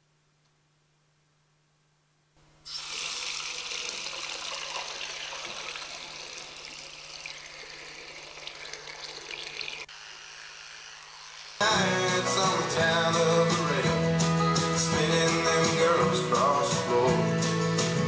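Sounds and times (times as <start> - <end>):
tap running into sink: 3.7 - 6.4.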